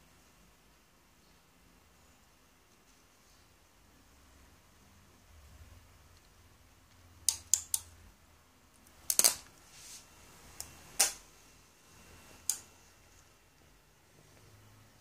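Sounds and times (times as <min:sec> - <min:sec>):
circuit board sparking snaps: 0:07.2 - 0:07.9, 0:08.8 - 0:09.6, 0:10.6 - 0:11.3, 0:12.4 - 0:12.7.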